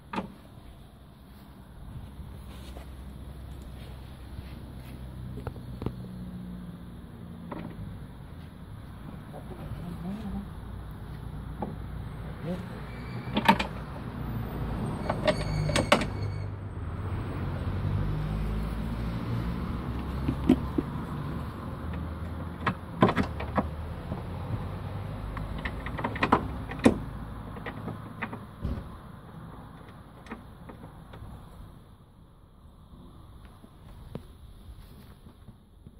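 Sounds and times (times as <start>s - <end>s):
metallic clicks and knocks: 25.3s - 28.9s.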